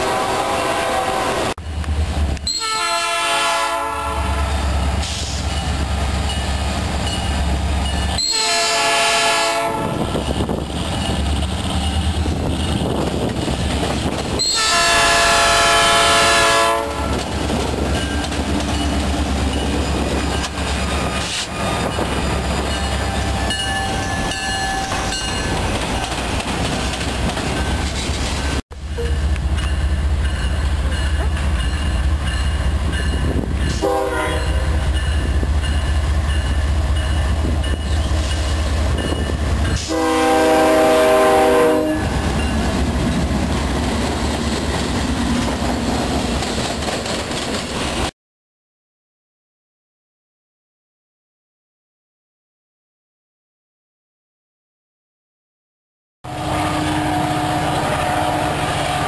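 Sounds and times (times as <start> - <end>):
locomotive air horn blasts: 0.0 - 1.6, 2.5 - 5.4, 8.2 - 10.2, 14.4 - 17.3, 33.7 - 34.8, 39.7 - 42.2, 56.3 - 59.0
freight train rumble and wheel clatter: 0.0 - 48.1, 56.3 - 59.0.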